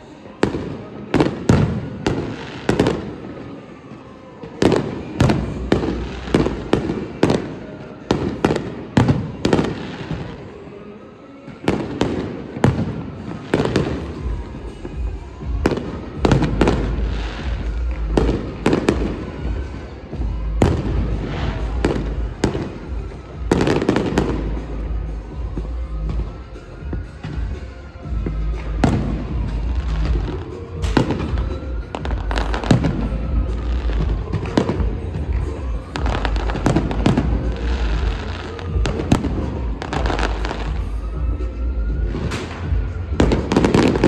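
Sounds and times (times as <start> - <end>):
fireworks banging: 11.6 - 41.0, 41.9 - 44.0.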